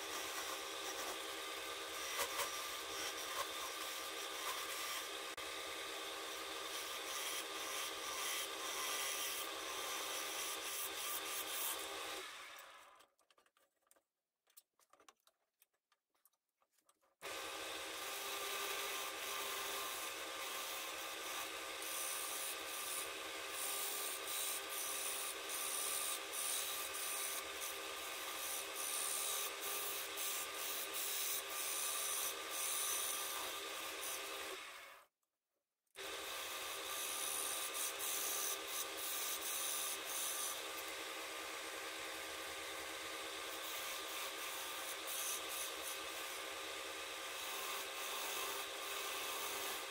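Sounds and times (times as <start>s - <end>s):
chisel scraping spinning wood: 0.0s - 5.4s
lathe hum: 0.0s - 12.8s.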